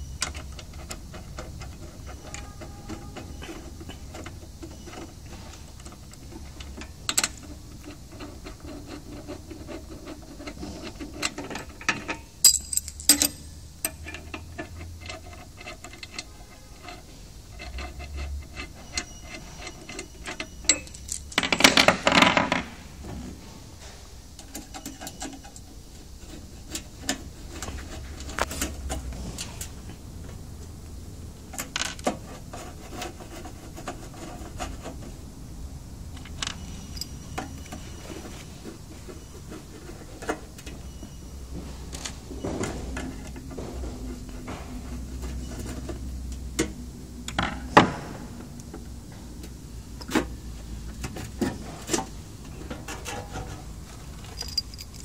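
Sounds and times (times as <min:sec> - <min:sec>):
small metal clicks and scrapes: 0:00.0 - 0:22.4, 0:24.4 - 0:29.9, 0:50.9 - 0:55.0
metal rattling: 0:11.3 - 0:16.1, 0:53.0 - 0:55.0.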